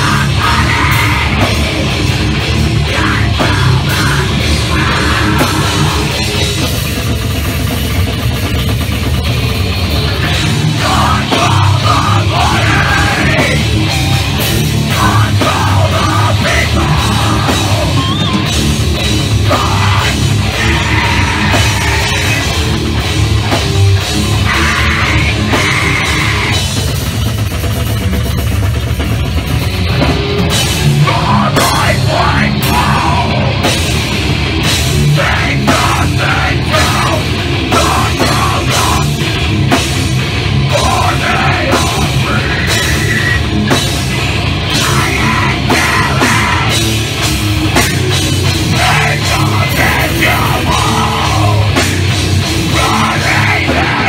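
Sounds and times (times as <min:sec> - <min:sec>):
screamed vocals: 0:00.0 - 0:06.5, 0:10.2 - 0:23.0, 0:24.2 - 0:26.7, 0:31.0 - 0:34.0, 0:34.9 - 0:39.4, 0:40.7 - 0:43.9, 0:44.6 - 0:47.0, 0:47.8 - 0:54.0
drum kit: 0:00.0 - 0:54.0
heavy guitars: 0:00.0 - 0:54.0.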